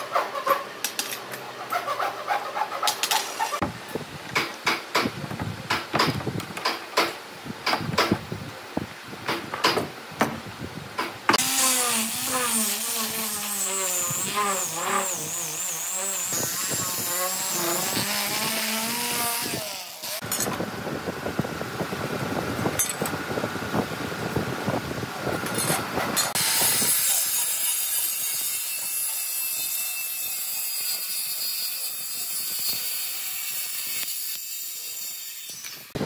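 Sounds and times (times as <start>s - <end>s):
circular saw cutting wood: 11.4s - 20.3s, 25.6s - 36.0s
electric sander whining: 11.4s - 21.0s.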